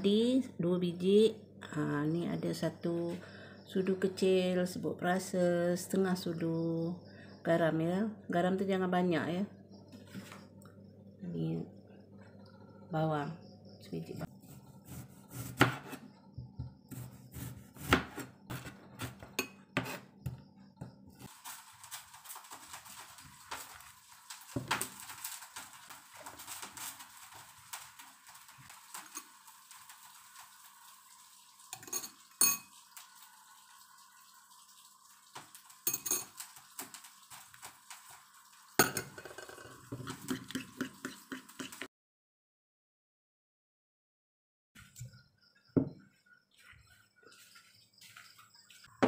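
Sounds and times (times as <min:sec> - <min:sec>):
knife chopping on cutting board: 0:14.5 - 0:16.0, 0:16.6 - 0:20.4
utensils clinking on board and bowl: 0:31.7 - 0:32.7, 0:35.8 - 0:36.5, 0:38.8 - 0:41.8
stirring egg in bowl: 0:39.2 - 0:41.9.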